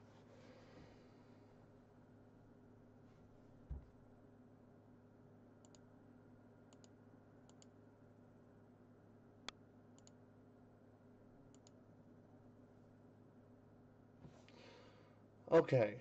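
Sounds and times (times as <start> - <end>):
low steady hum: 0.0 - 16.0
computer mouse clicks: 5.6 - 5.9, 6.7 - 7.8, 9.5 - 10.2, 11.5 - 11.8.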